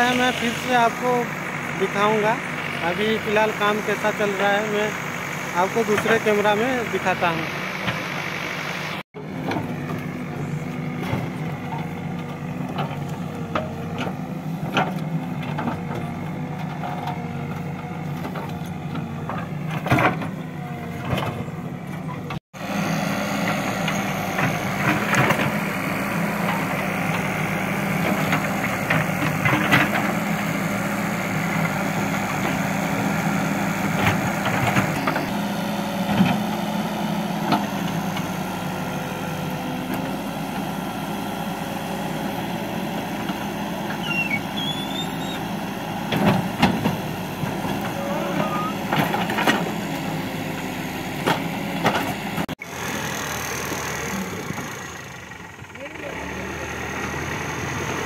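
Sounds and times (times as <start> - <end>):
diesel engine running under load: 0.0 - 58.0.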